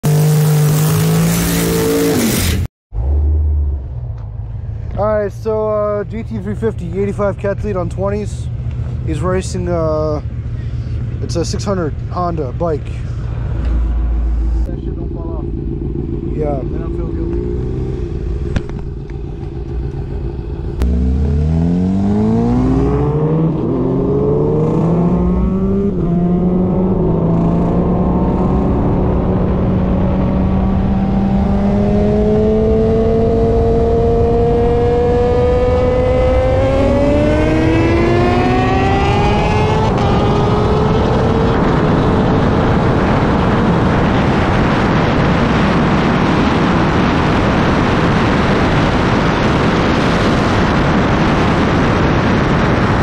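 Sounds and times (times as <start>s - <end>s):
car engine accelerating hard: 0.0s - 3.9s, 11.2s - 53.0s
rushing wind noise: 21.4s - 53.0s.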